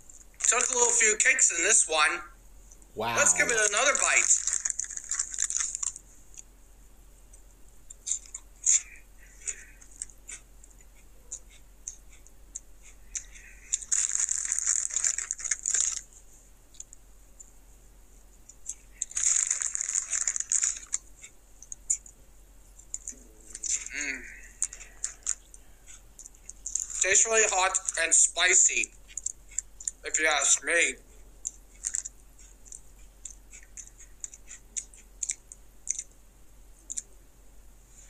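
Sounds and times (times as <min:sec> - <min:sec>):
plastic snack bag crinkling: 0:03.5 - 0:06.0, 0:13.2 - 0:16.1, 0:19.0 - 0:21.0, 0:24.6 - 0:25.5.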